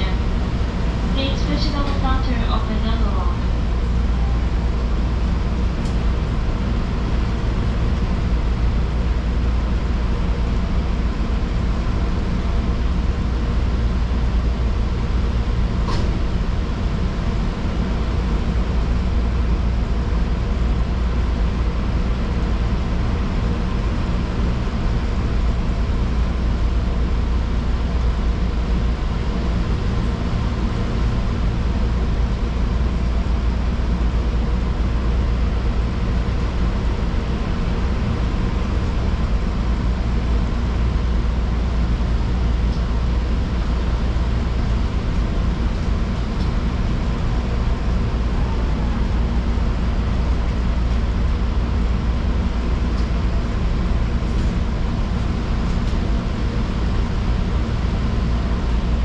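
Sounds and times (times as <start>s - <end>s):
electric train rumbling: 0.0s - 59.0s.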